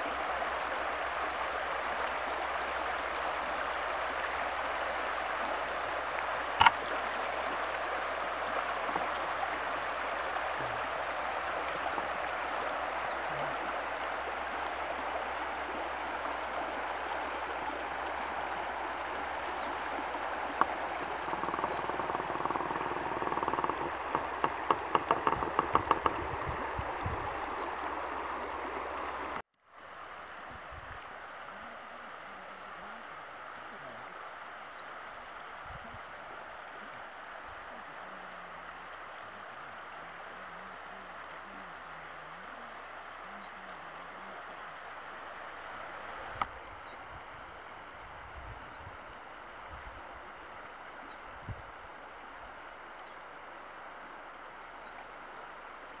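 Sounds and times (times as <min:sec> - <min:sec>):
stream rippling over stones: 0:00.0 - 0:56.0
quick ticks: 0:20.6 - 0:26.3.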